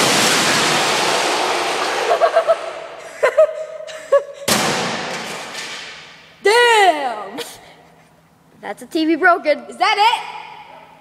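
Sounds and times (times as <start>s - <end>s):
tv smashing on concrete floor: 0.0s - 2.6s.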